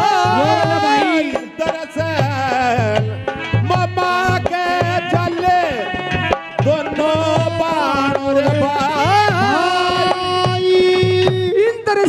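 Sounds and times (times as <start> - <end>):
hand drum beat: 0.0 - 11.6.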